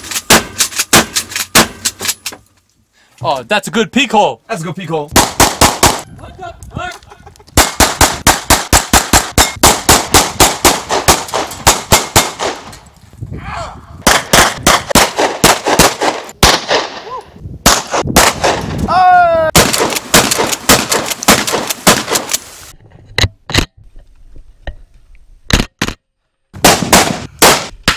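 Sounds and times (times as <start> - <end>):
handgun and shotgun gunfire: 5.2 - 6.0, 7.6 - 12.7, 14.1 - 17.0, 19.6 - 22.4, 26.6 - 27.9.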